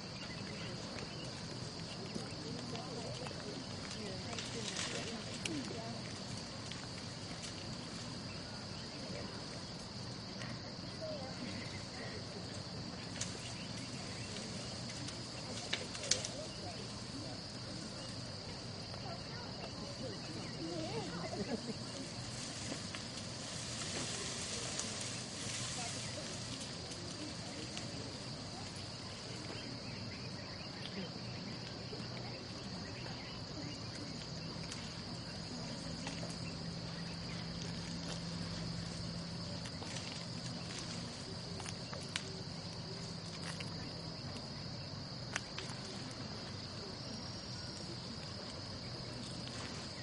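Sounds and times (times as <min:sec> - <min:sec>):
insects droning: 0:00.0 - 0:50.0.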